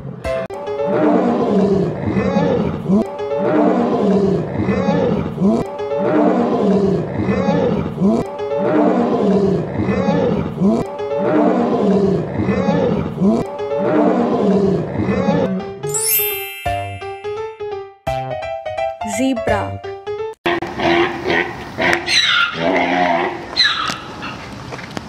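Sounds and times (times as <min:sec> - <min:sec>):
lion roaring: 0:00.9 - 0:15.5, 0:20.8 - 0:23.4.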